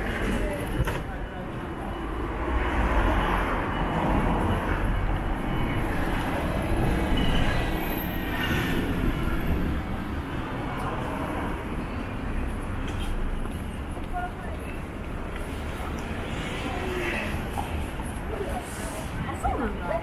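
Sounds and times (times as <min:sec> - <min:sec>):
train passing rumble: 0:00.0 - 0:20.0.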